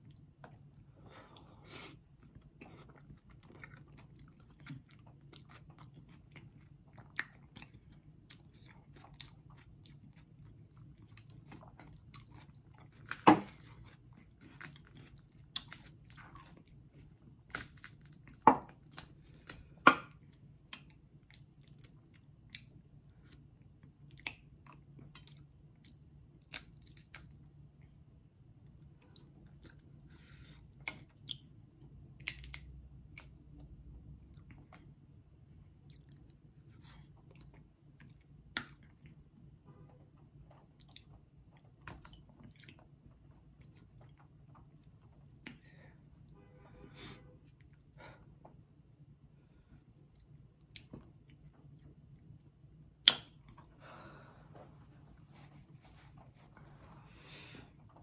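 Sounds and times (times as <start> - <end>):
chewing: 2.2 - 19.7, 40.5 - 45.6
crab shell cracking: 32.2 - 32.7.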